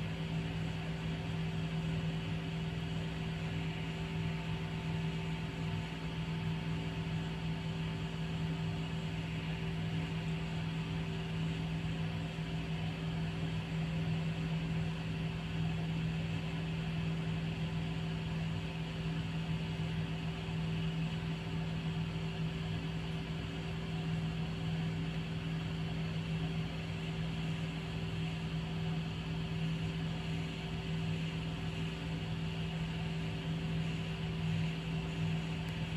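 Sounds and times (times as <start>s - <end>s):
low mechanical hum: 0.0s - 35.9s.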